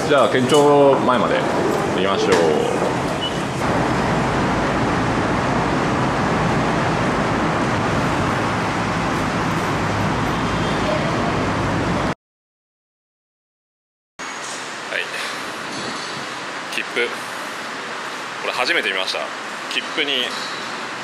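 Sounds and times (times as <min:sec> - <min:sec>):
steady rushing noise: 0:00.0 - 0:10.6.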